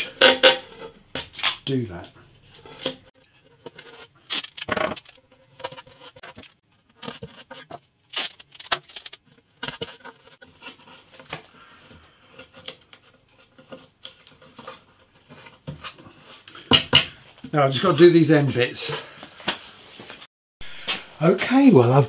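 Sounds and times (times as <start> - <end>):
masking tape tearing: 1.2 - 1.7, 4.2 - 5.2, 8.0 - 9.2
tape rustling: 3.6 - 11.8.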